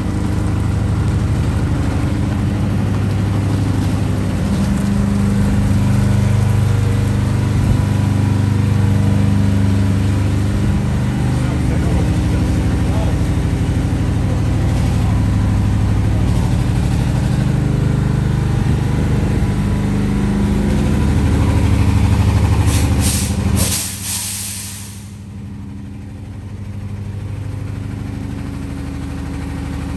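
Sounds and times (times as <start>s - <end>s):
truck diesel engine running: 0.0s - 29.9s
air brake hiss: 22.6s - 25.2s.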